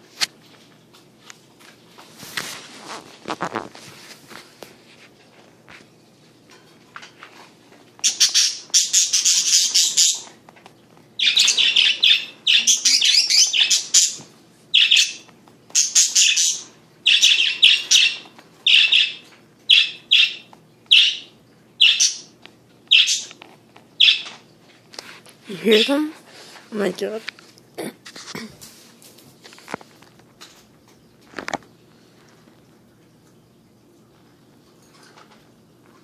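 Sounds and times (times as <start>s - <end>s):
budgerigars chirping: 8.0s - 10.3s, 11.2s - 22.3s, 22.9s - 23.3s, 24.0s - 24.3s.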